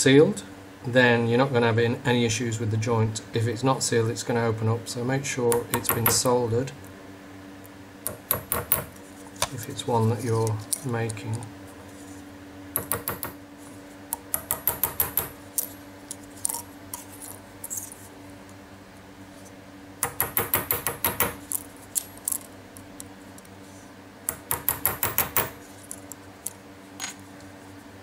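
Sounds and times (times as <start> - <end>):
hammer tapping metal punch: 5.5 - 6.3, 8.1 - 8.9, 12.8 - 13.4, 14.2 - 15.4, 20.0 - 21.4, 24.3 - 25.6.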